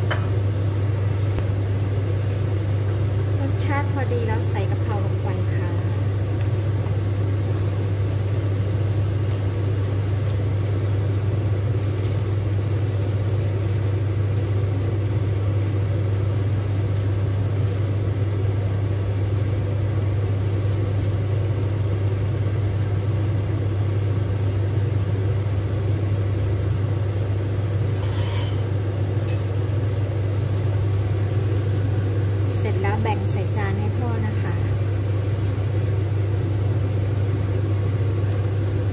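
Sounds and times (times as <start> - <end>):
appliance electric hum: 0.0 - 38.9.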